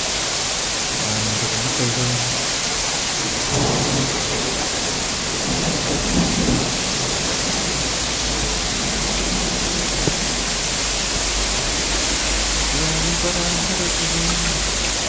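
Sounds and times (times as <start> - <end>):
snow and rain hissing: 0.0 - 15.0
low rumble: 3.5 - 15.0.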